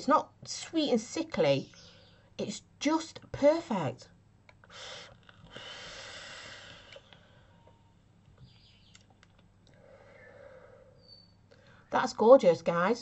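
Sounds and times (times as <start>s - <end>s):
faint clicks: 6.8s - 9.8s
soft exhale: 9.7s - 11.8s.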